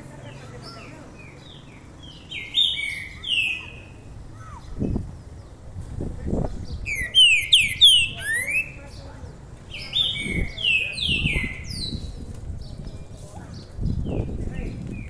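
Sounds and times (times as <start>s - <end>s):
songbird whistling: 6.9s - 8.8s.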